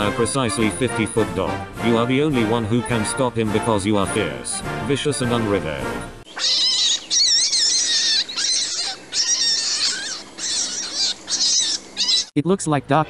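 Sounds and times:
high-pitched cartoon voice squeaks: 6.4 - 12.3.

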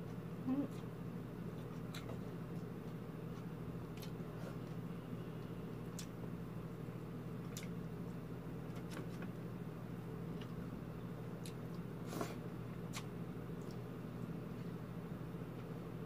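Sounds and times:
steady low hum: 0.0 - 16.0
person chewing: 1.5 - 4.8, 5.7 - 6.2, 7.4 - 7.8, 11.4 - 13.9.

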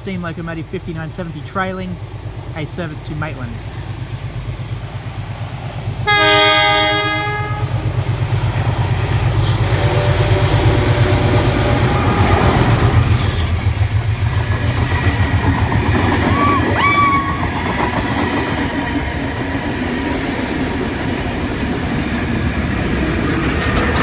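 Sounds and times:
diesel engine throbbing: 0.0 - 18.2
train carriages rolling past: 0.0 - 24.0
locomotive horn blast: 6.0 - 7.8.

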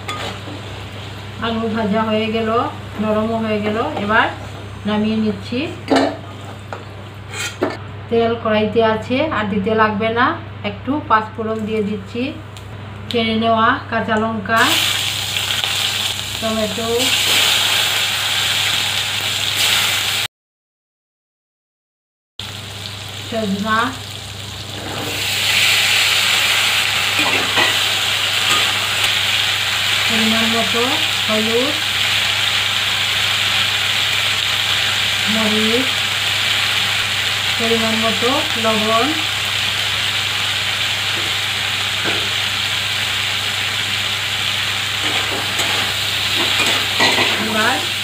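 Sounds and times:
spatula scraping pan: 7.3 - 7.6
oil sizzling: 14.6 - 20.3, 22.4 - 48.0.

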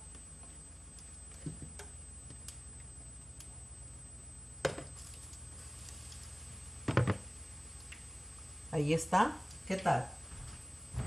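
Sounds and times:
soft hiss: 4.8 - 11.0.

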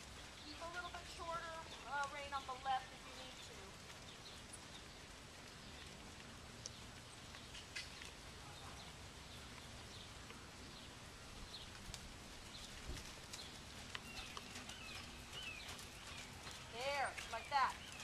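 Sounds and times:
horse hoofbeats on sand: 0.0 - 4.8, 12.3 - 18.0
bird chirps: 14.0 - 18.0.

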